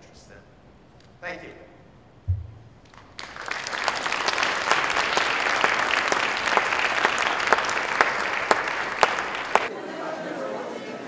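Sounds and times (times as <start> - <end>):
audience applauding: 2.8 - 9.7.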